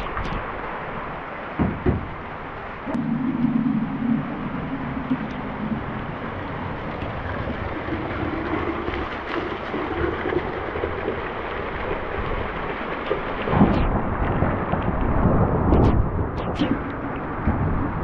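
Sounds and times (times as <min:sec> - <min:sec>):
runoff water splashing from roof: 0:00.0 - 0:18.0
steady rain: 0:00.0 - 0:18.0.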